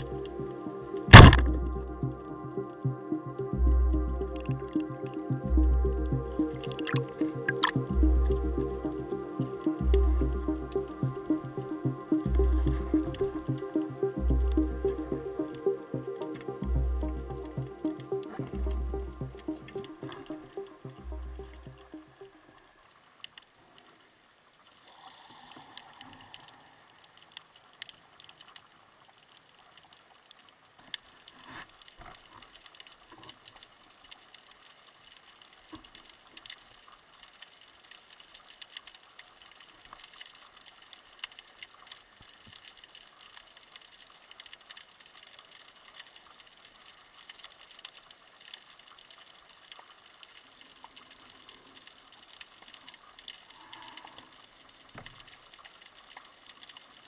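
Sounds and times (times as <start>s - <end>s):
moving water wash: 0.0s - 23.9s
fine underwater crackle of clicks: 0.0s - 57.0s.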